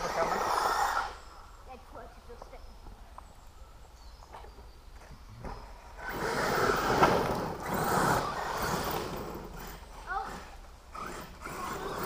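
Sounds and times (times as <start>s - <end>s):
radio-controlled car motor: 0.0s - 1.2s, 5.9s - 12.0s
tyres churning dirt: 5.0s - 12.0s.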